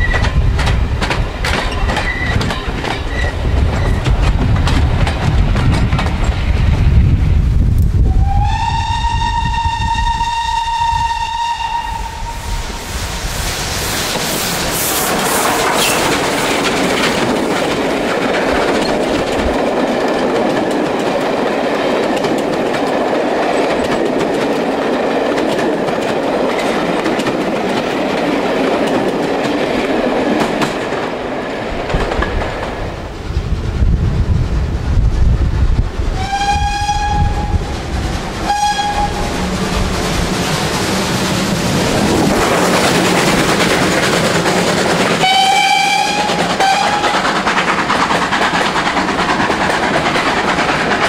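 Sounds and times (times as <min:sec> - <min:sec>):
train wheels clicking over rail joints: 0:00.0 - 0:06.8, 0:13.9 - 0:32.9, 0:36.2 - 0:51.0
steam whistle blowing: 0:08.1 - 0:13.2, 0:36.2 - 0:37.7, 0:38.4 - 0:39.3, 0:45.2 - 0:47.2.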